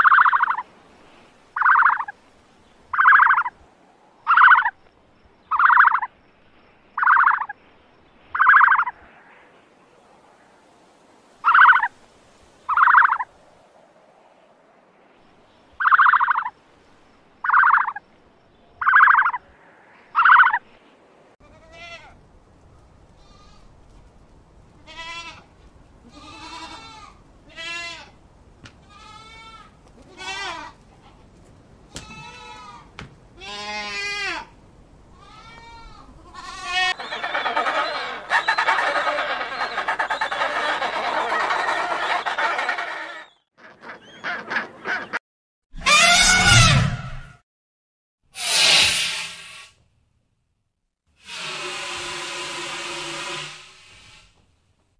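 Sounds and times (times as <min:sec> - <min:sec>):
sharp loud animal calls: 0:00.0 - 0:00.6, 0:01.6 - 0:02.2, 0:02.9 - 0:03.6, 0:04.2 - 0:04.8, 0:05.5 - 0:06.1, 0:07.0 - 0:07.6, 0:08.3 - 0:09.0, 0:11.4 - 0:11.9, 0:12.7 - 0:13.3, 0:15.8 - 0:16.5, 0:17.4 - 0:18.0, 0:18.8 - 0:19.4, 0:20.1 - 0:20.6, 0:36.4 - 0:43.4, 0:45.8 - 0:47.2
chorus of animal calls: 0:01.6 - 0:02.1, 0:03.0 - 0:03.5, 0:04.2 - 0:04.8, 0:05.5 - 0:06.1, 0:07.0 - 0:07.5, 0:08.4 - 0:09.0, 0:11.4 - 0:11.9, 0:12.7 - 0:13.3, 0:15.8 - 0:16.5, 0:17.4 - 0:18.0, 0:18.8 - 0:19.5, 0:20.1 - 0:20.6, 0:36.8 - 0:45.2.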